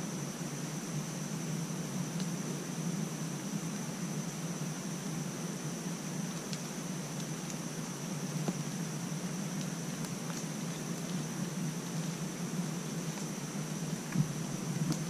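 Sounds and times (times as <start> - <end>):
outdoor background hiss: 0.0 - 15.0
faint light ticks: 6.3 - 7.6.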